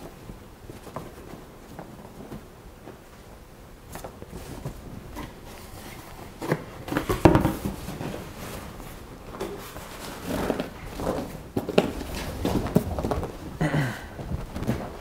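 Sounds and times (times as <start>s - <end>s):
cardboard box rustling: 4.3s - 13.6s.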